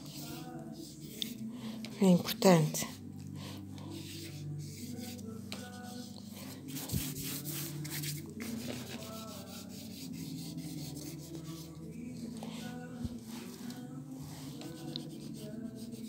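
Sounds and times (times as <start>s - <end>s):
crayon scribbling on paper: 0.0s - 11.9s, 13.4s - 16.0s.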